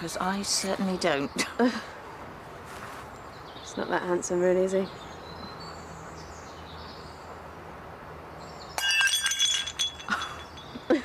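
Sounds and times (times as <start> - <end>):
ceramic mug smashing: 8.8 - 10.8
ringing clinks of pieces: 8.8 - 11.0.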